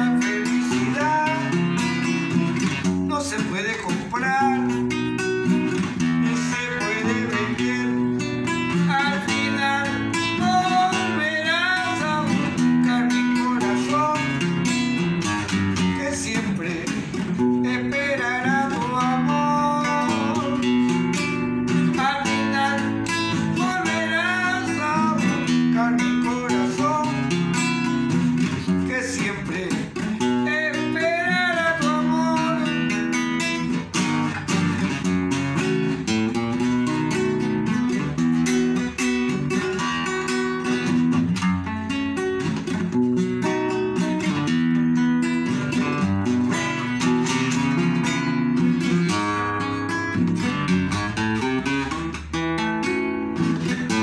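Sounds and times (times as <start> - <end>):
man singing: 0.0 - 41.2, 53.5 - 54.0
classical guitar playing: 0.0 - 54.0.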